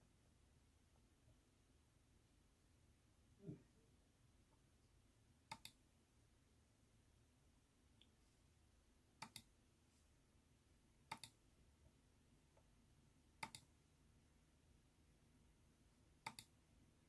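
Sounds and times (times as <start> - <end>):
computer mouse clicking: 5.5 - 5.8, 9.2 - 9.5, 11.1 - 11.4, 13.4 - 13.7, 16.2 - 16.6.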